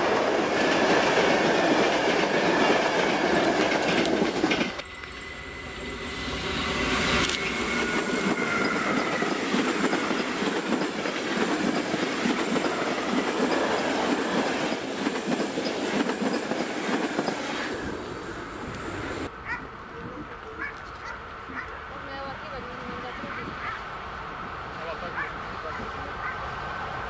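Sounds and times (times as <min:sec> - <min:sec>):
locomotive whine: 0:00.0 - 0:19.3
train wheels rumbling on rail: 0:00.0 - 0:19.3.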